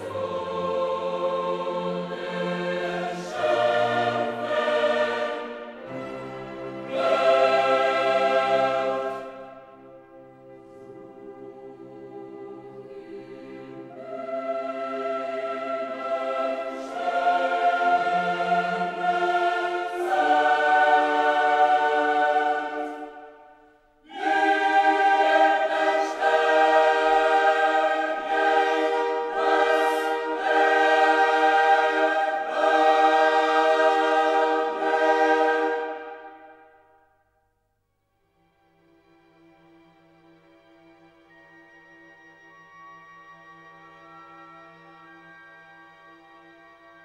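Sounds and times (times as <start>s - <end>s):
choir singing held chords: 0.0s - 37.2s.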